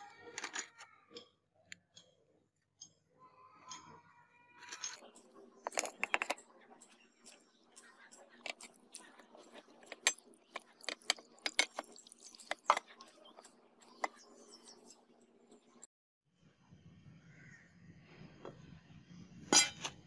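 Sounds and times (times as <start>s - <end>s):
metal clinking against bowl: 4.6s - 15.9s
water pouring: 8.5s - 14.1s.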